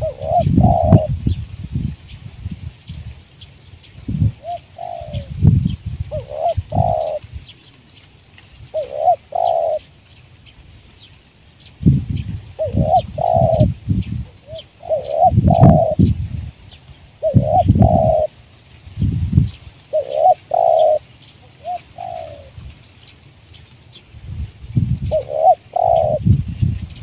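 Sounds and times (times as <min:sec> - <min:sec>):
dove cooing: 0:00.0 - 0:01.3, 0:04.2 - 0:10.0, 0:12.5 - 0:16.2, 0:17.2 - 0:18.4, 0:19.8 - 0:22.7, 0:25.0 - 0:26.5.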